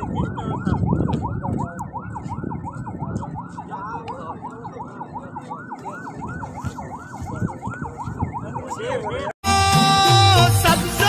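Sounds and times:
emergency siren fast yelp: 0.0 - 9.3
music: 9.4 - 11.0.

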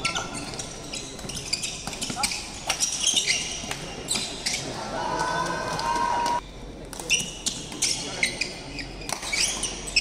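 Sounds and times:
shoes squeaking on wooden court: 0.0 - 4.8, 7.0 - 10.0.

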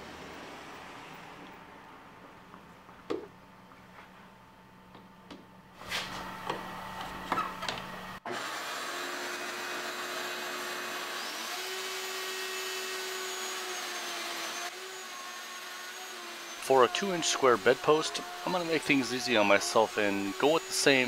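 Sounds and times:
dust extraction vacuum: 5.8 - 21.0
router cutting wood: 6.3 - 21.0.

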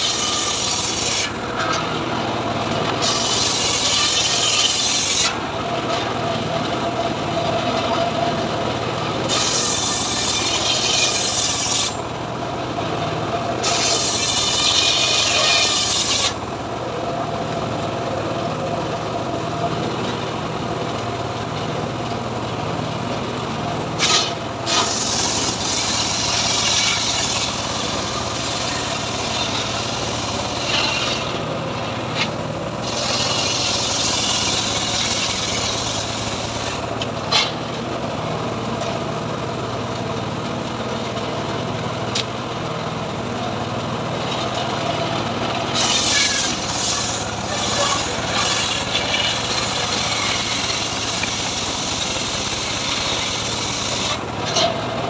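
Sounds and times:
circular saw blade screaming: 0.0 - 1.4, 3.0 - 5.4, 9.2 - 12.0, 13.6 - 16.4, 24.0 - 31.4, 32.2 - 36.8, 45.6 - 54.6
engine running: 0.0 - 55.0.

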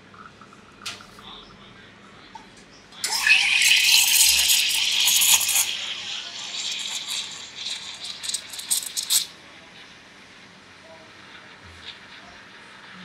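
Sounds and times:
steam wand hissing in milk: 3.1 - 9.3.

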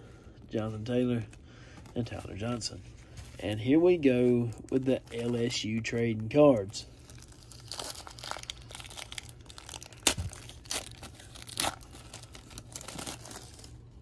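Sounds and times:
wrapper crinkling and tearing: 4.3 - 14.0.

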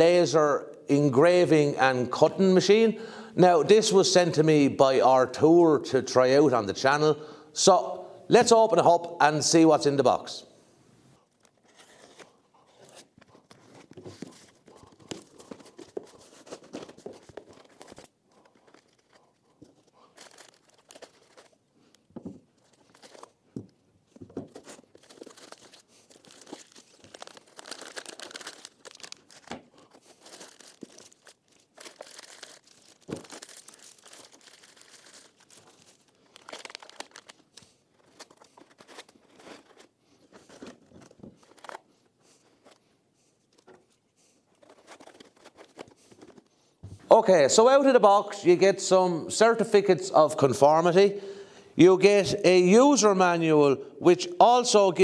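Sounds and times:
rustling plastic and foam wrapping: 11.2 - 46.8
tearing cardboard: 11.6 - 21.7, 24.4 - 42.8, 44.3 - 46.4.

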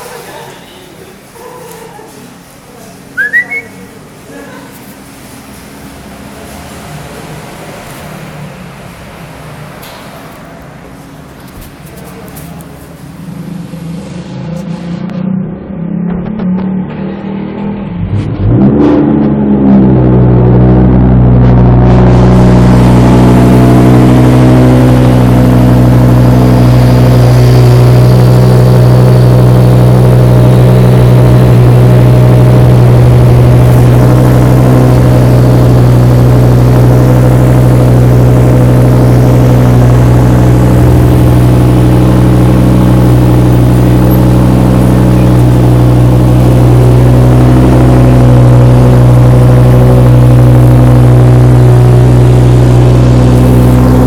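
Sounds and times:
car engine idling loudly: 1.2 - 54.0.

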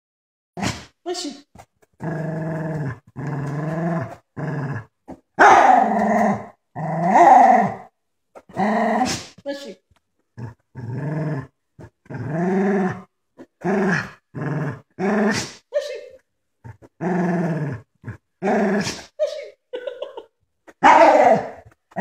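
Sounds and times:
dog growling in play: 1.9 - 9.4, 10.3 - 15.6, 16.6 - 19.1.

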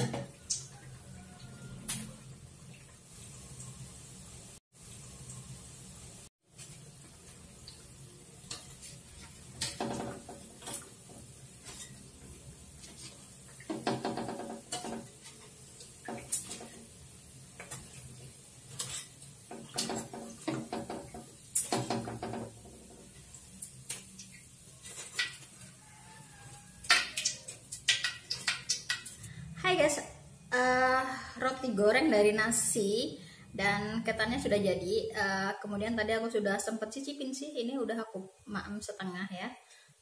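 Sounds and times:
metal tongs clinking on wok: 18.7 - 19.2.

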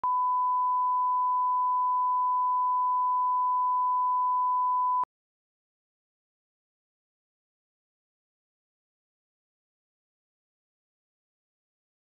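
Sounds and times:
pure test tone beep: 0.0 - 5.1.

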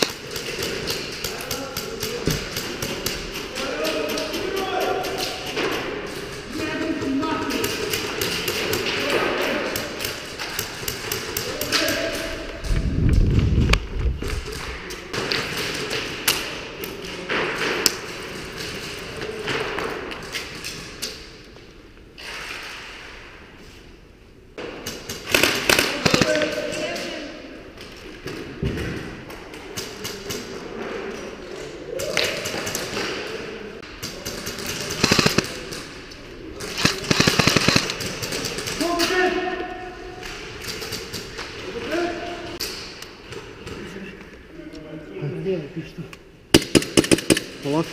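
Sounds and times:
airsoft gun full-auto bursts: 25.3 - 26.5, 34.9 - 35.5, 36.8 - 38.7
sharp clicks: 35.0 - 35.5, 36.8 - 38.1.

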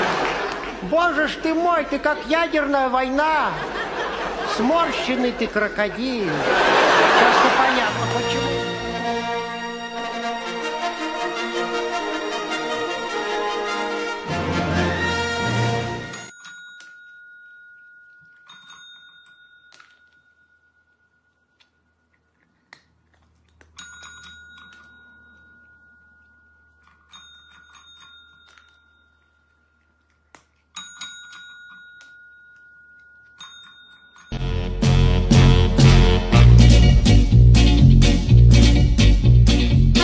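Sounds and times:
music: 7.8 - 16.3, 34.4 - 40.0
desk bell dings: 23.8 - 29.2, 30.8 - 34.4.

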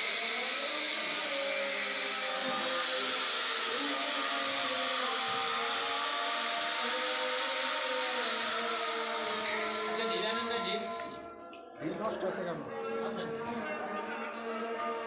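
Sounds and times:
angle grinder cutting: 0.0 - 11.2.

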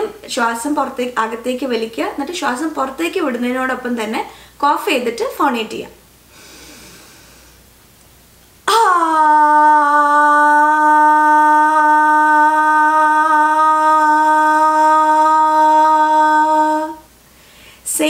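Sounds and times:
woman holding a long vowel: 8.7 - 17.1.

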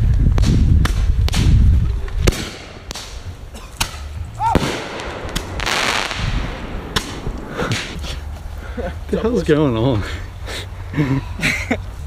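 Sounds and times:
firework sparks crackling: 4.5 - 8.3
fireworks popping: 4.5 - 8.3.

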